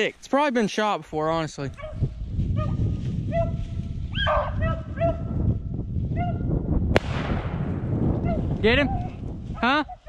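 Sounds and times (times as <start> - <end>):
dogs barking: 1.8 - 2.0, 4.2 - 5.3
steady low rumble: 6.6 - 9.6.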